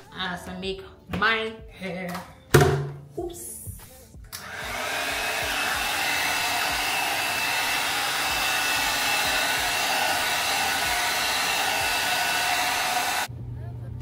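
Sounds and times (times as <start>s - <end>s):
hot air brush blowing: 4.4s - 13.3s.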